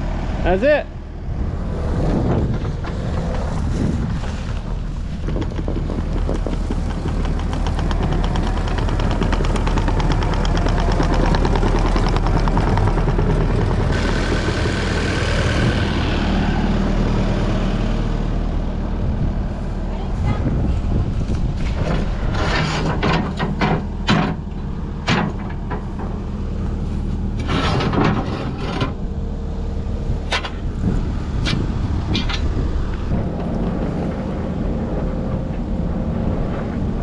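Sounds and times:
diesel engine running: 0:00.0 - 0:37.0
fast even clatter: 0:04.5 - 0:14.4.

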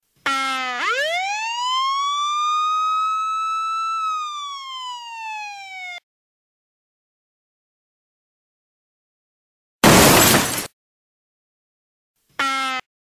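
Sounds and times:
police siren wail: 0:00.3 - 0:06.0.

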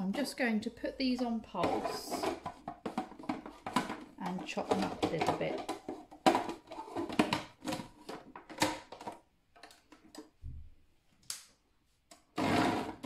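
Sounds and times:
food processor motor chopping: 0:12.4 - 0:13.0.

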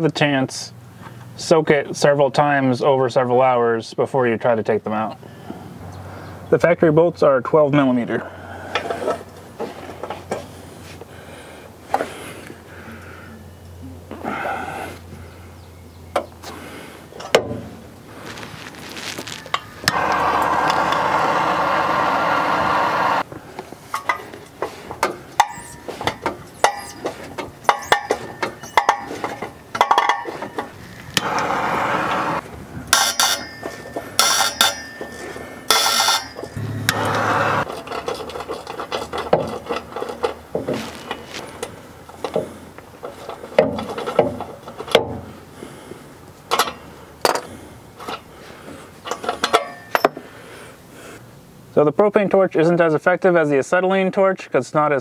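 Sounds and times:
ratchet clicking and clanking: 0:23.9 - 0:31.3, 0:32.9 - 0:40.5.

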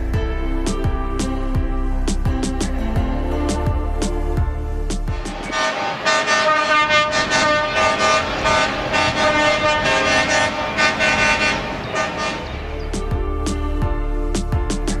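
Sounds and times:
vehicle air horn blasts: 0:05.2 - 0:12.7.

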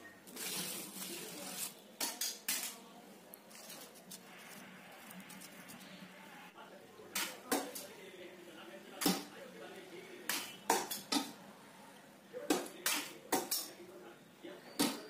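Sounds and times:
metal tools scraping frosting: 0:00.3 - 0:02.8, 0:03.4 - 0:06.2.

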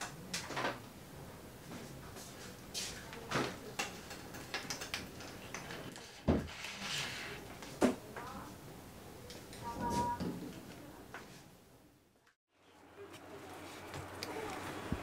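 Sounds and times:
small items clicking on counter: 0:03.7 - 0:05.9.

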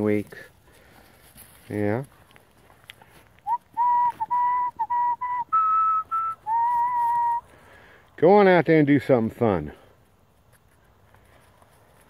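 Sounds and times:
person whistling: 0:03.4 - 0:07.5.

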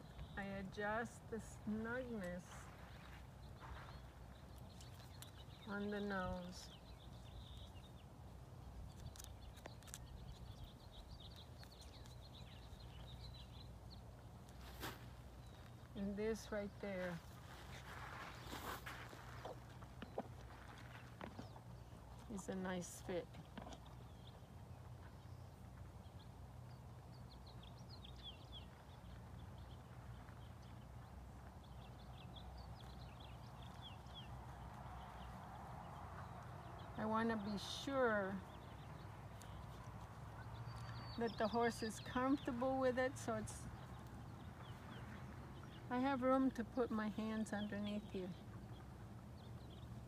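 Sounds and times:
distant birds chirping: 0:00.0 - 0:50.0.

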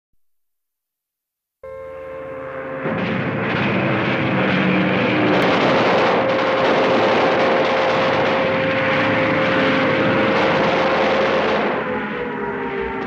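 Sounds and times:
propeller aircraft engine droning: 0:01.6 - 0:13.0.

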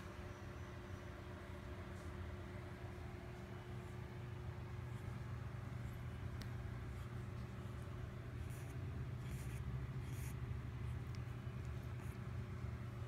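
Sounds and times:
cat purring: 0:04.5 - 0:13.0.

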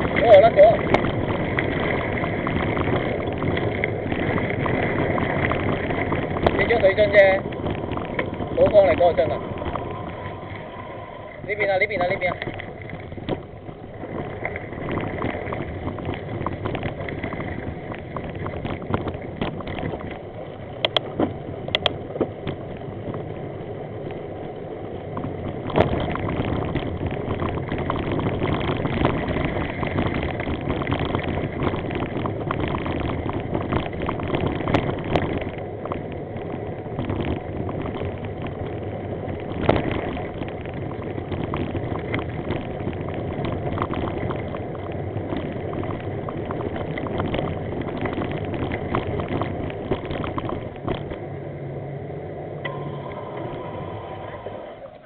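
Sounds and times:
bicycle road rumble on gravel: 0:00.0 - 0:55.0.

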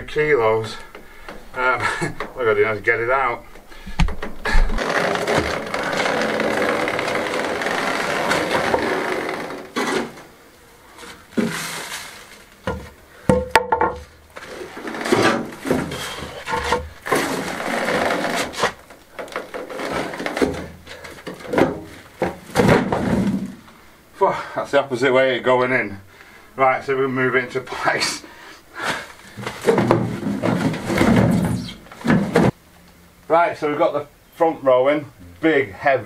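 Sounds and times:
wooden plank scraping and knocking: 0:04.0 - 0:10.3, 0:11.0 - 0:23.6, 0:29.3 - 0:32.6
wheelbarrow rumbling over paving: 0:04.8 - 0:10.3, 0:10.9 - 0:13.0, 0:14.4 - 0:23.6, 0:29.3 - 0:32.6.

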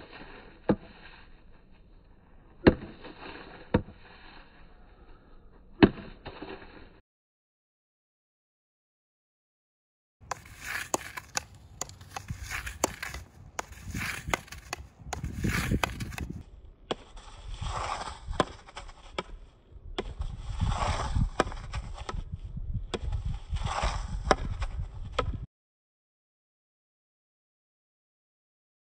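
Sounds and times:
hockey stick clicking on ball: 0:02.6 - 0:04.0, 0:10.2 - 0:22.2
shoes scuffing on turf: 0:10.3 - 0:16.4.

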